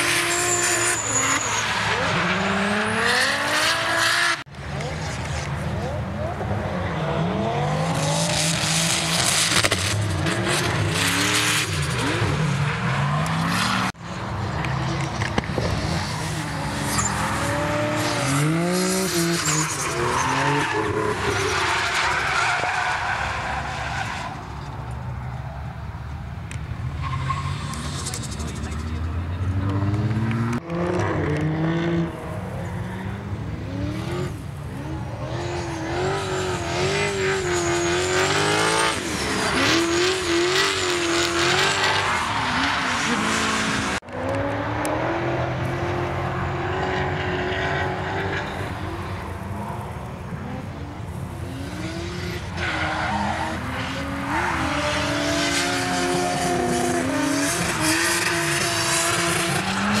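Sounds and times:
car engines revving hard: 0.0s - 24.6s, 26.5s - 60.0s.

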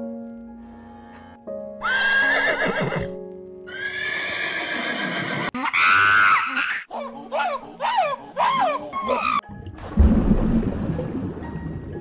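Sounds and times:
background music: 0.0s - 12.0s
horse whinnying: 1.8s - 6.9s.

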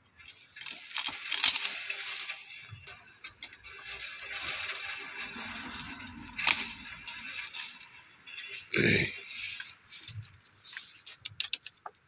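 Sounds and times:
branches rustling: 0.2s - 12.0s.

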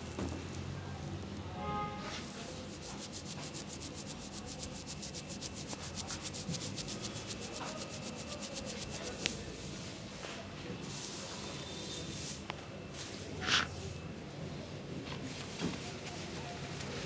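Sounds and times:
fingers rubbing wet hair: 2.5s - 9.6s.

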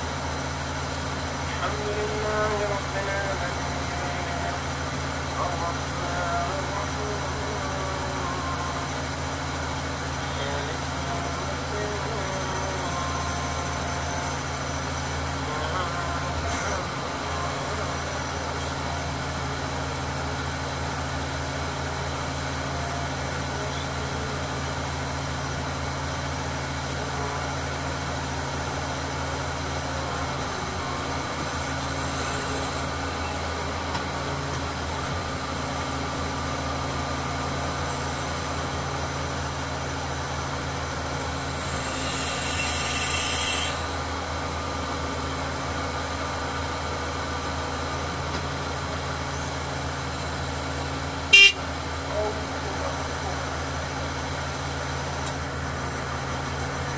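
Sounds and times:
diesel engine idling: 0.0s - 56.9s
short high-pitched sound: 51.4s - 51.6s.

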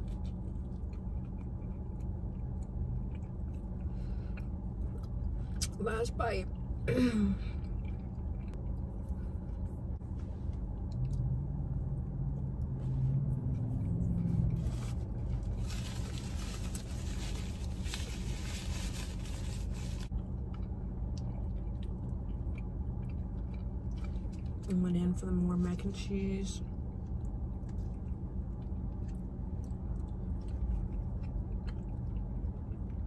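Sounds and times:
low hum inside car: 0.0s - 33.0s
paper napkin rustling: 14.6s - 20.1s.

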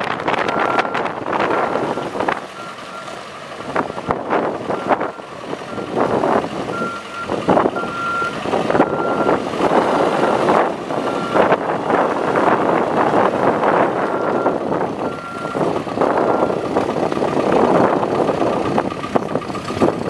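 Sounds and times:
diesel engine running: 0.0s - 20.0s
reversing alarm beeping: 0.5s - 3.1s, 3.9s - 11.5s, 14.1s - 16.8s.

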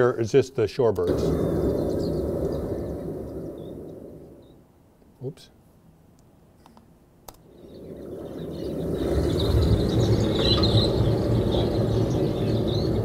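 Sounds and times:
flock of birds chirping: 1.1s - 4.6s, 7.4s - 13.0s
low rushing noise: 1.1s - 5.2s, 7.4s - 13.0s
click: 6.2s - 7.4s.

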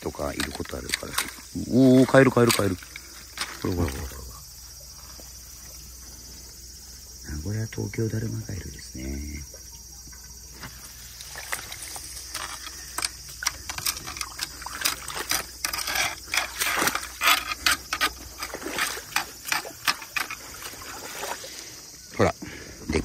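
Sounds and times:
net splashing and scraping through water: 0.0s - 4.3s, 10.5s - 21.9s.

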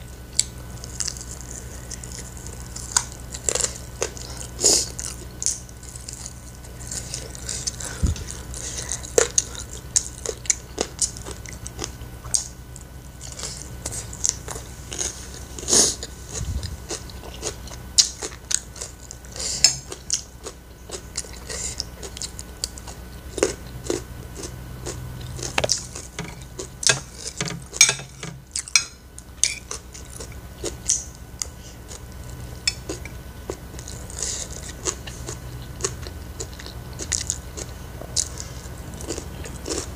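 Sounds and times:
chewing and biting food: 0.3s - 39.9s
metal spoon clinking on a plate: 26.9s - 29.6s.

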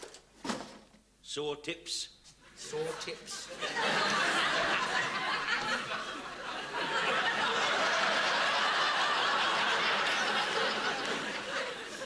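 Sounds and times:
studio audience laughing: 2.8s - 12.0s.

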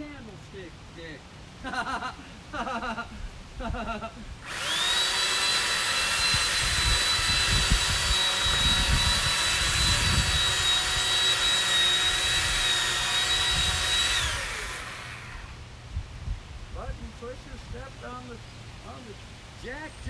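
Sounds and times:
electric chainsaw cutting wood: 4.4s - 15.6s.

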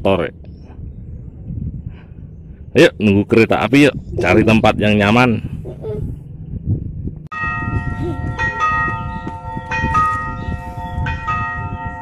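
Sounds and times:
railway warning bell ringing: 7.3s - 12.0s.

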